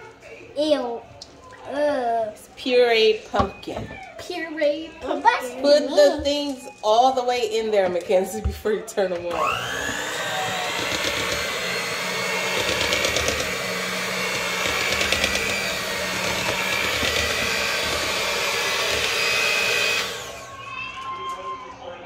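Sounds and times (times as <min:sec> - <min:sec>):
electric mixer whirring: 0:09.2 - 0:20.6.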